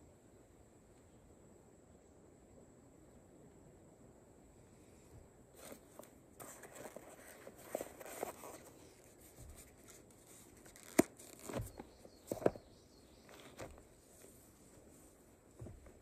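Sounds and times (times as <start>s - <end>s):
foam block rustling and scraping: 5.6s - 12.6s.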